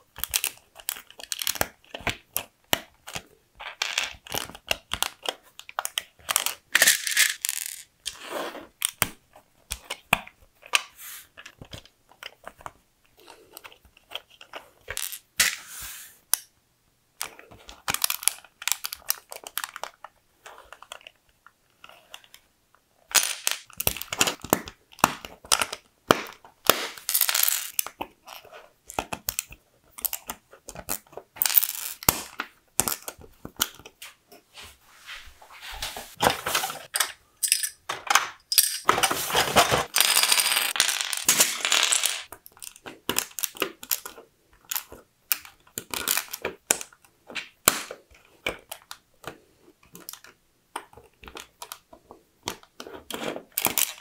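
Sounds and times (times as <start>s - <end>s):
plastic bricks clicking together: 0.2s - 8.2s, 17.2s - 20.0s, 23.1s - 33.9s, 39.8s - 48.9s.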